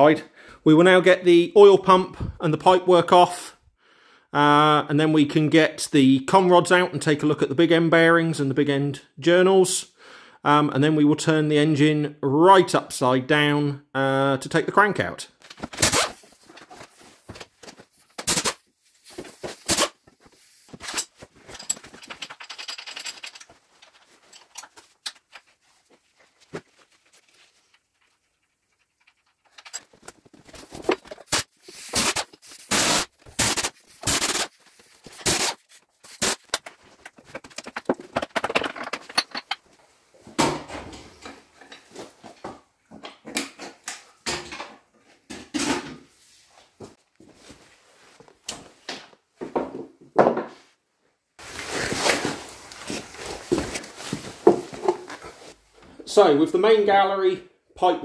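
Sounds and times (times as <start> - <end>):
metal clicks and knocks: 21.5 - 25.5, 36.5 - 39.7
pneumatic wrench rattling: 31.2 - 36.6.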